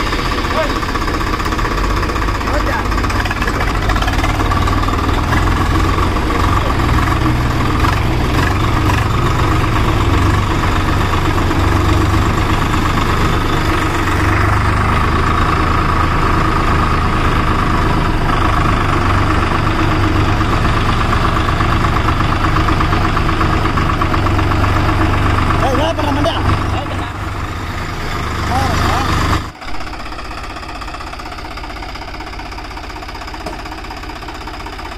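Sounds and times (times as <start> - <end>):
tractor diesel engine running: 0.0 - 34.9.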